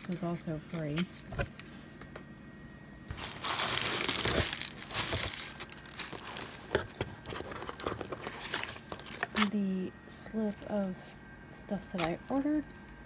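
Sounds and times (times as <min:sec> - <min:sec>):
packing paper crinkling: 0:03.1 - 0:09.5.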